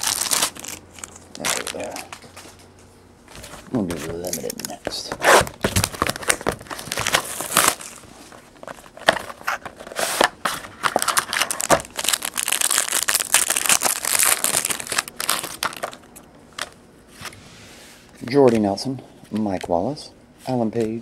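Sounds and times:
shiny wrapper crinkling: 0.0 - 2.4, 10.7 - 16.8
plastic wrapping crinkling: 0.0 - 2.6, 5.6 - 16.8.

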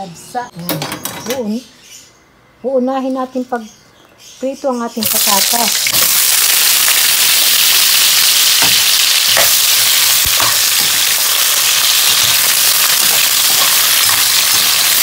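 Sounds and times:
vegetables sizzling in oil: 5.0 - 15.0.

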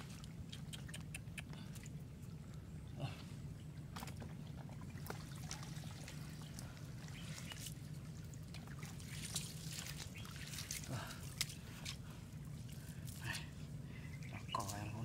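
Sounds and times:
steady low hum: 0.0 - 15.0
water splashing and dripping: 3.9 - 13.6.

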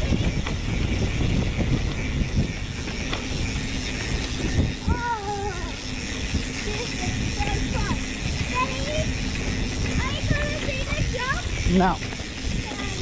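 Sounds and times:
wavering high-pitched tone: 0.0 - 9.3
bike rattling over bumps: 0.0 - 13.0
bike tyres on dirt trail: 0.0 - 13.0.

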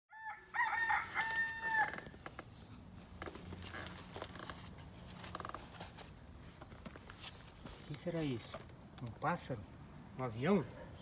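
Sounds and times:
rooster crowing: 0.1 - 2.2.

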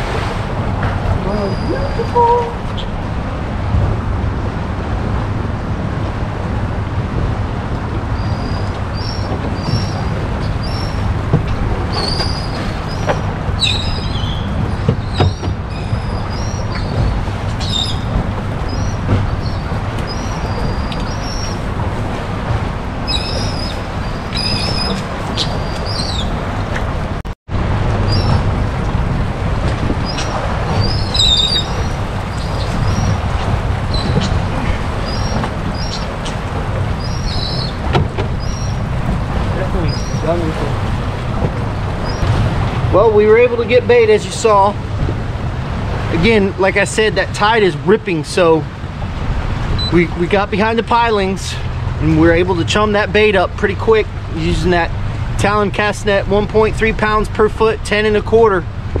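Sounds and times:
wind and water around a boat: 0.0 - 59.0
high bird chirps: 11.9 - 18.1, 23.1 - 26.3, 30.1 - 33.2, 37.0 - 37.8.

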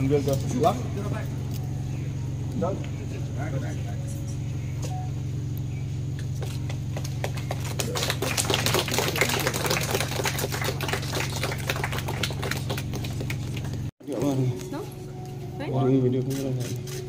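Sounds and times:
steady low hum: 0.0 - 17.0
people clapping: 6.4 - 13.9.

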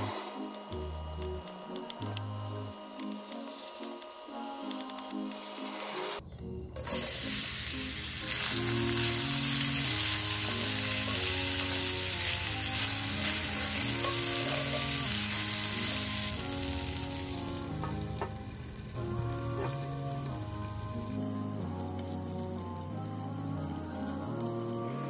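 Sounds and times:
potatoes sizzling in hot oil: 6.8 - 25.0.

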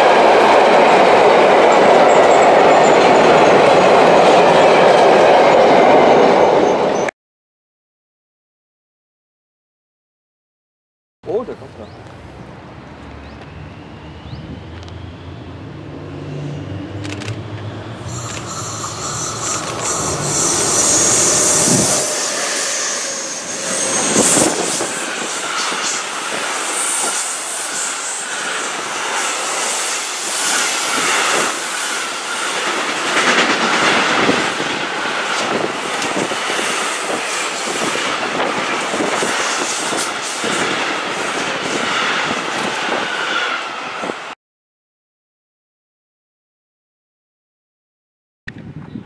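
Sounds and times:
freight train rolling: 0.0 - 7.1, 11.4 - 44.4
thin wheel squeal: 18.1 - 32.3
wheels clicking over rail joints: 19.3 - 20.9.

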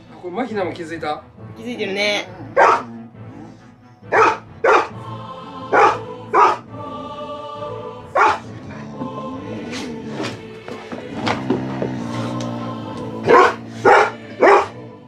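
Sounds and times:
background music: 0.0 - 15.0
large dog barking: 2.5 - 3.0, 4.1 - 5.0, 5.7 - 6.7, 8.2 - 8.5, 13.2 - 14.8.

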